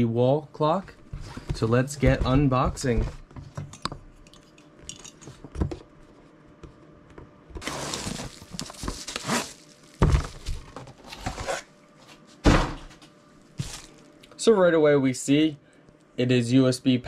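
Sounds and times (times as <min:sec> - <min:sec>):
rustling cardboard and bubble wrap: 0:07.6 - 0:11.6, 0:13.6 - 0:14.1
package set down thunks: 0:10.0 - 0:10.9.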